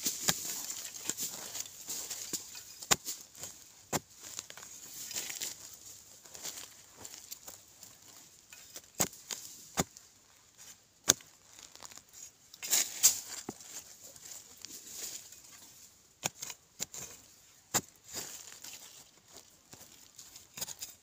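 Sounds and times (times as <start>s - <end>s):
soil crumbling and rustling: 0.0s - 21.0s
metal blade chopping soil: 0.1s - 4.1s, 8.5s - 9.9s, 11.0s - 11.3s, 16.2s - 18.8s, 20.5s - 21.0s.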